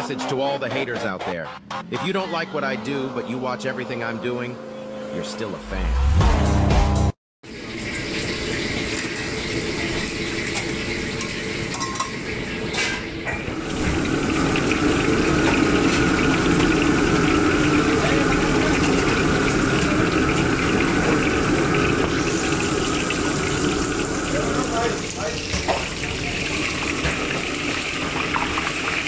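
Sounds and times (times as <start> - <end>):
hot oil bubbling in a wok: 7.4 - 29.0
wok burner rushing hiss: 7.5 - 29.0.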